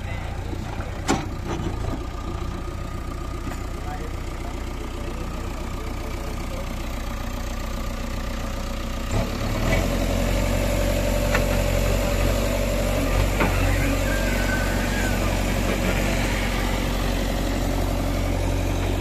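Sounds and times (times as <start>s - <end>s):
diesel engine idling and revving: 0.0s - 19.0s
hydraulic whine: 13.1s - 17.2s.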